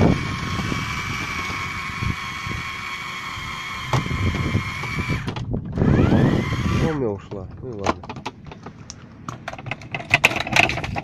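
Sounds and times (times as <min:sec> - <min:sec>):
electric fishing reel whining: 0:00.0 - 0:07.0.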